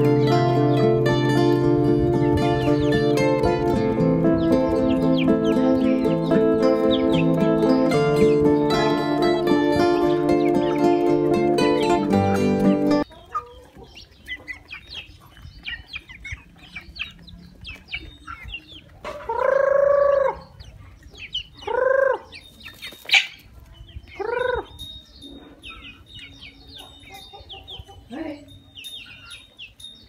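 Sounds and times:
chicks chirping and clucking: 0.0 - 30.0.

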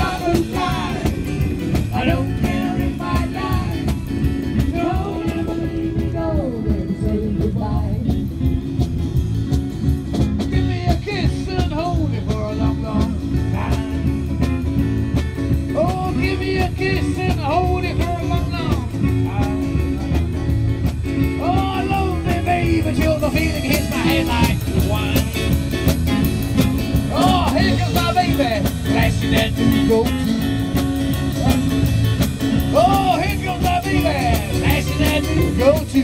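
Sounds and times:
person singing: 0.0 - 8.2
live band through speakers: 0.0 - 36.0.

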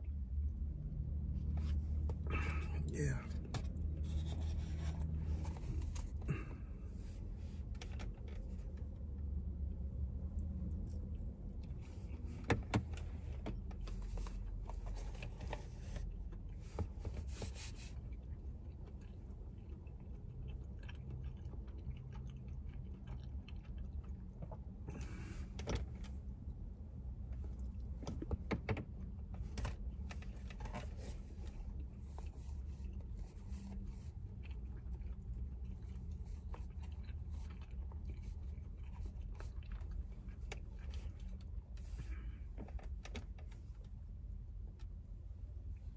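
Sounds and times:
low hum in car cabin: 0.0 - 45.9
person chewing and crunching: 17.8 - 25.5, 29.9 - 42.4.

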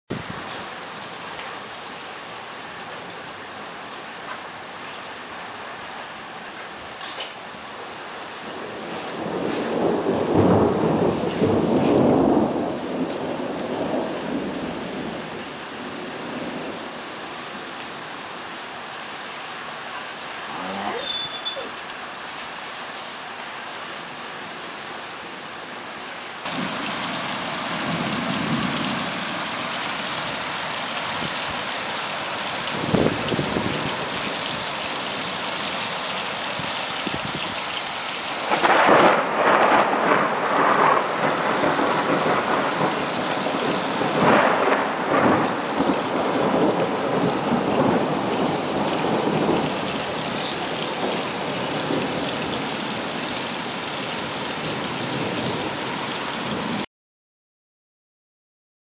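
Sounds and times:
rain hissing: 0.1 - 56.9
thunder rumbling: 8.4 - 17.5, 26.4 - 35.4, 38.3 - 53.2
crackling peal of thunder: 8.5 - 17.0, 26.4 - 30.4, 32.6 - 34.7, 38.4 - 53.1, 54.6 - 55.8.

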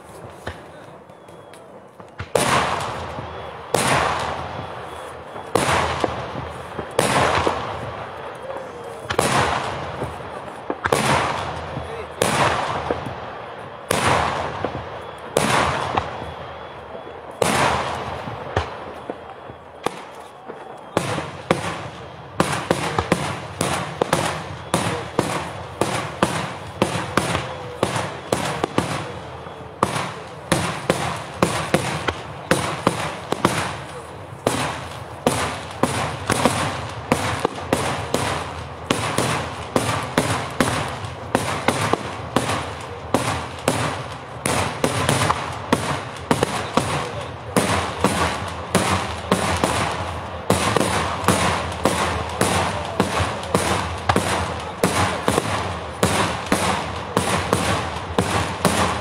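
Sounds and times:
firework crackling: 0.0 - 59.0
firework shells bursting: 17.4 - 59.0.

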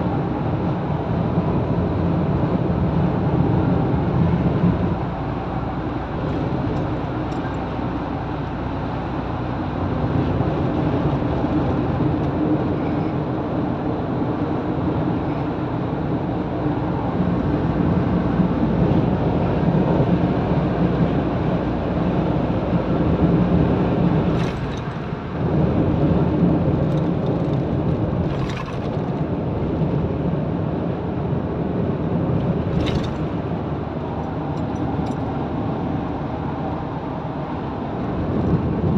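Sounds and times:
car road and engine noise: 0.0 - 38.9.

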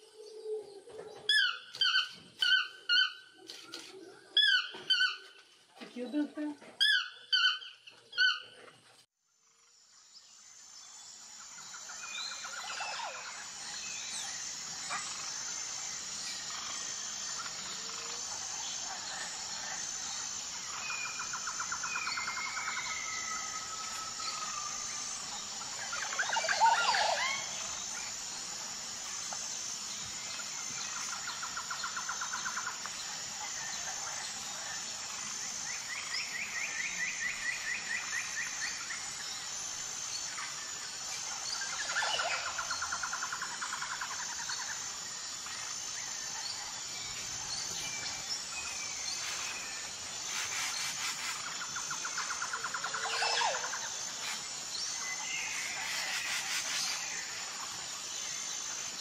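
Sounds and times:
toucan calling: 6.8 - 8.6
steady high hiss: 9.4 - 59.0.

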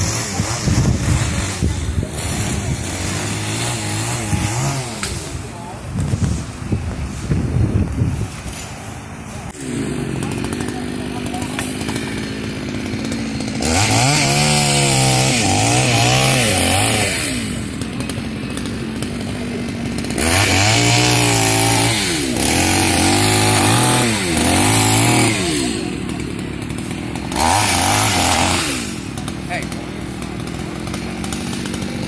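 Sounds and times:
chainsaw cutting branches: 0.0 - 32.0.

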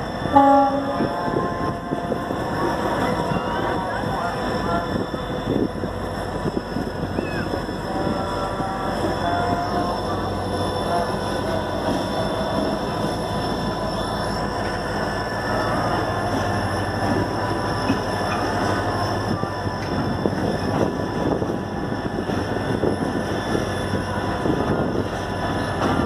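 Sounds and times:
diesel locomotive engine: 0.0 - 26.0
train wheels rolling on rails: 0.0 - 26.0.

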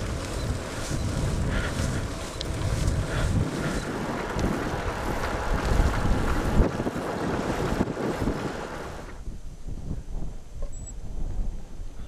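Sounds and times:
faint ticks: 0.0 - 4.6
bicycle tyre rumble on road: 0.0 - 12.0
wind buffeting microphone: 0.0 - 12.0.

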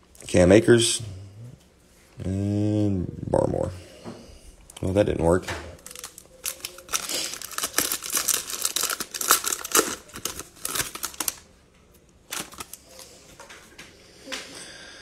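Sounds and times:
foil pack crinkling: 5.8 - 11.5, 12.2 - 13.2
foil rustling: 5.8 - 11.5, 12.3 - 13.2.

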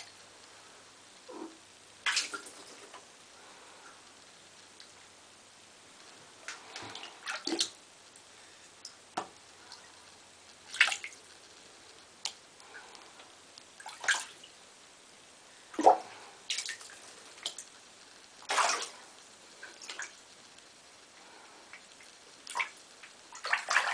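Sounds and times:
cat pawing water splashes: 18.5 - 19.0, 22.5 - 23.9.

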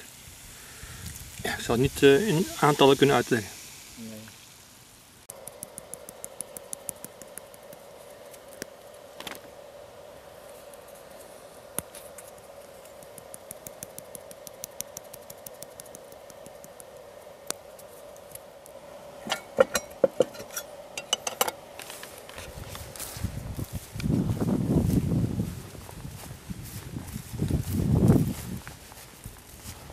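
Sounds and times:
faint steady hum: 0.0 - 29.9
metal cookware clinking: 19.2 - 21.6.

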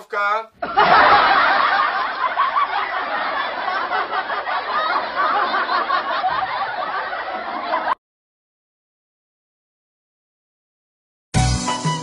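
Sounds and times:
crowd laughing: 0.6 - 8.0.

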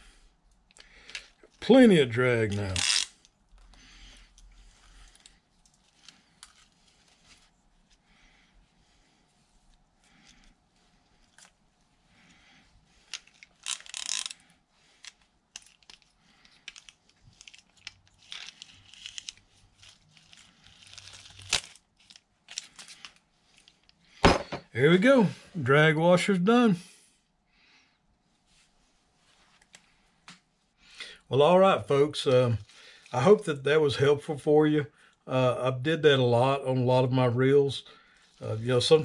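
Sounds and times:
fishing reel clicks and scrapes: 2.6 - 3.3, 13.1 - 14.4.

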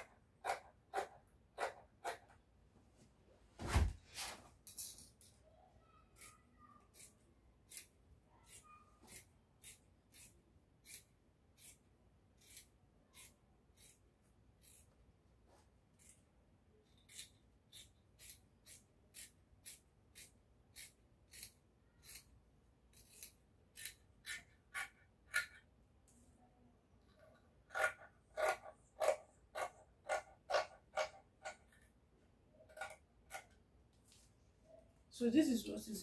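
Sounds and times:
scissors snipping fabric: 0.0 - 2.4, 6.2 - 15.1, 15.9 - 25.7.

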